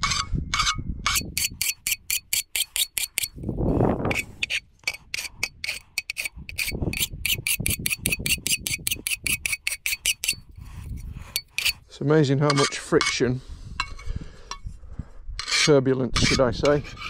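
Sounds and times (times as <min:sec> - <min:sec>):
file rasping on metal edges: 0:00.0 - 0:03.4, 0:04.0 - 0:11.9, 0:15.4 - 0:17.0.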